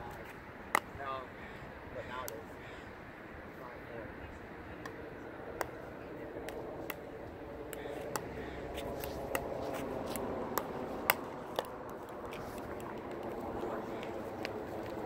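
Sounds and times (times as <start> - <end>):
paddle hitting plastic ball: 7.7 - 13.3.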